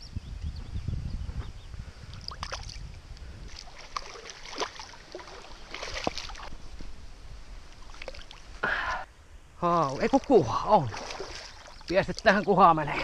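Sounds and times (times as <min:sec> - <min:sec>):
wind rumble on microphone: 0:00.0 - 0:04.3
fish splashing and thrashing: 0:02.2 - 0:02.8, 0:03.5 - 0:06.5, 0:07.7 - 0:08.5, 0:09.9 - 0:12.3.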